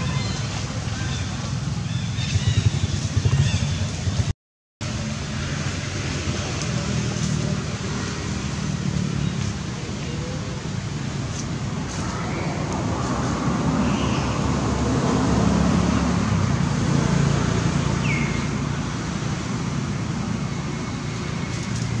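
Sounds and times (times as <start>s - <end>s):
road traffic rumble: 0.0s - 22.0s
vehicle passing: 11.8s - 22.0s.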